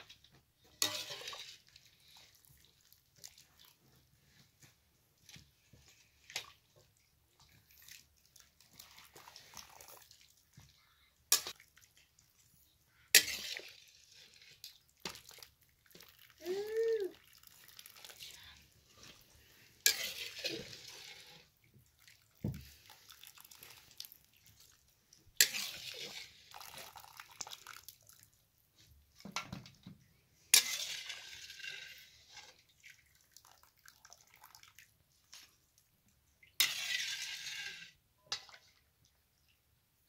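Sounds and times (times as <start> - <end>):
broth pouring into metal pot: 13.1 - 18.7, 25.4 - 28.2.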